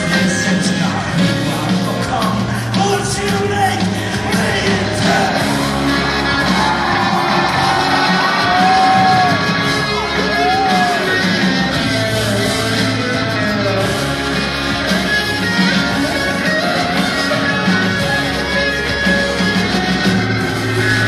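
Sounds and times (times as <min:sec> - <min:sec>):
rock band playing: 0:00.0 - 0:21.0.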